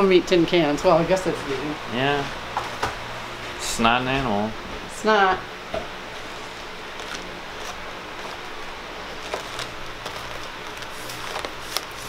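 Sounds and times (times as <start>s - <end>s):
room hiss: 0.0s - 12.0s
boxes tapping and rustling: 9.2s - 12.0s.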